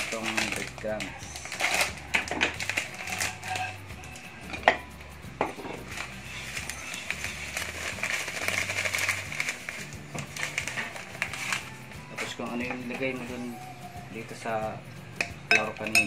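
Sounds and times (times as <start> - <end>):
plastic packet crinkling: 0.0 - 3.8, 5.8 - 12.4.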